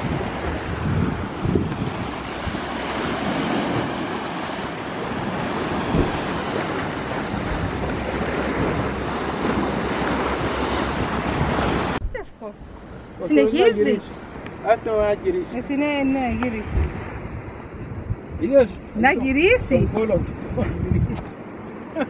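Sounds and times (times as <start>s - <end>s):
waves splashing on rocks: 0.0s - 12.0s
wind buffeting microphone: 0.0s - 21.4s.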